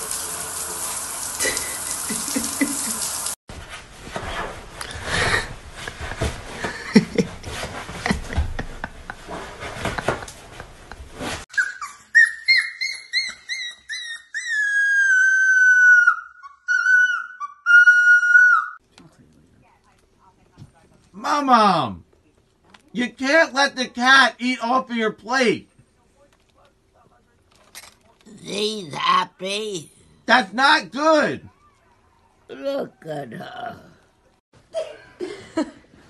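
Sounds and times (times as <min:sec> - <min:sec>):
running water: 0:00.0 - 0:03.4
knocks and rustling: 0:05.7 - 0:11.4
puppy howling: 0:11.6 - 0:18.8.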